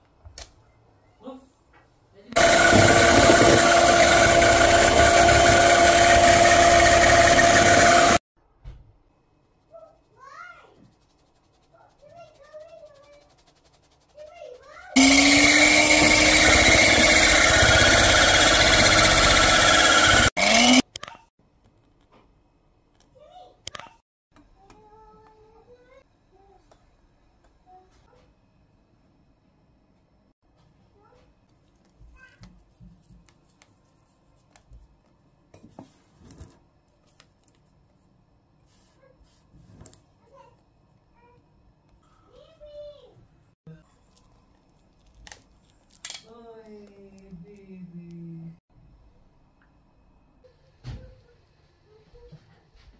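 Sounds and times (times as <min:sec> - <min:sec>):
electric hand mixer whirring: 0:02.4 - 0:08.2, 0:15.0 - 0:20.8.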